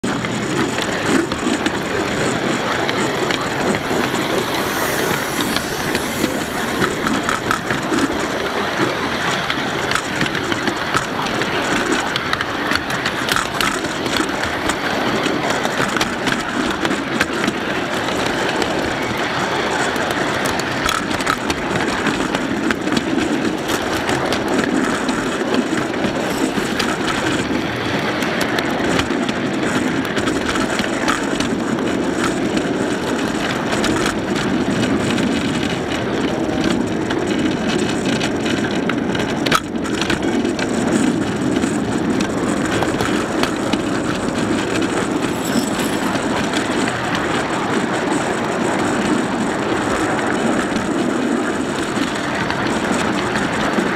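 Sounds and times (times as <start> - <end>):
clicks and rattles: 0.0 - 53.9
train wheels rumbling on rails: 0.0 - 53.9.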